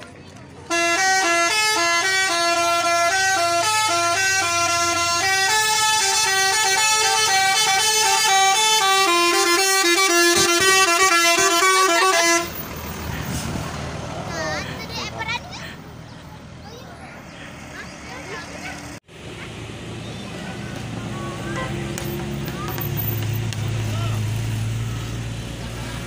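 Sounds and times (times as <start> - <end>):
bus horn playing a melody: 0.7 - 12.7.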